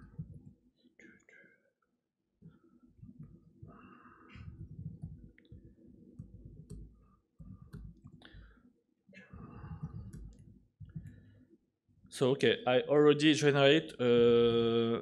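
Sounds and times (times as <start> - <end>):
laptop keyboard typing: 4.3 - 8.5, 9.4 - 11.2.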